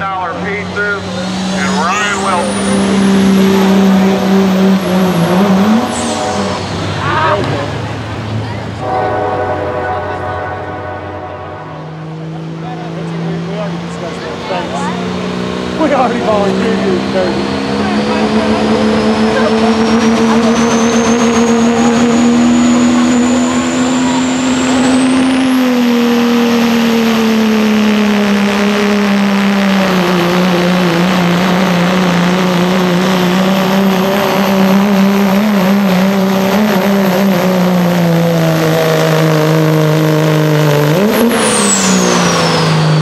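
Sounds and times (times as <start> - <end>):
diesel engine at full throttle: 0.0 - 43.0
turbocharger whistle: 4.9 - 7.5, 17.9 - 33.2, 38.5 - 43.0.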